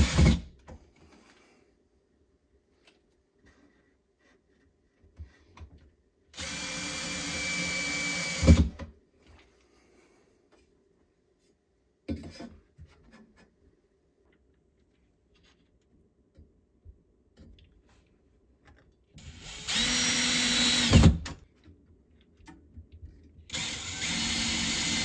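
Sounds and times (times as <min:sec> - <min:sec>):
cordless drill driving screws: 0:06.4 - 0:08.7, 0:19.2 - 0:21.2, 0:23.5 - 0:25.0.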